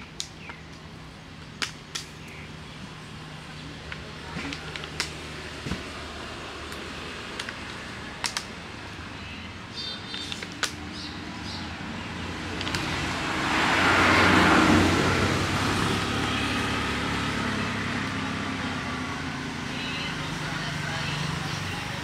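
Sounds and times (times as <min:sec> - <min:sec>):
plastic bottle crackling: 0:03.9 - 0:05.9, 0:10.0 - 0:10.8
motor vehicle running: 0:10.0 - 0:22.0.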